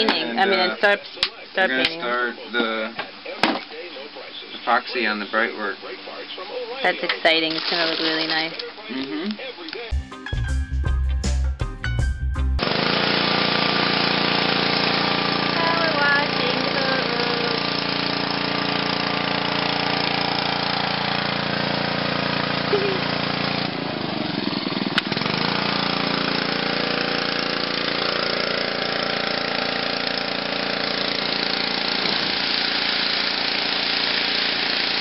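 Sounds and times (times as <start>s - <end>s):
pressure washer engine humming: 12.6s - 35.0s.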